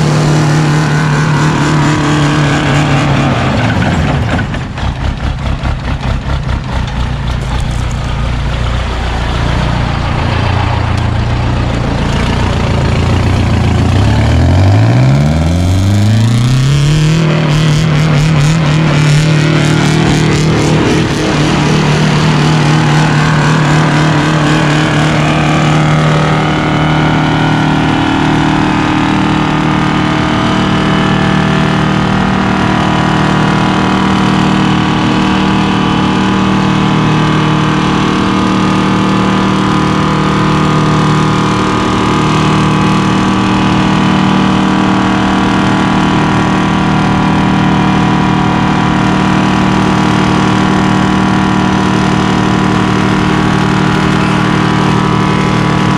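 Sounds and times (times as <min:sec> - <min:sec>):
diesel engine running hard: 0:00.0 - 0:55.9.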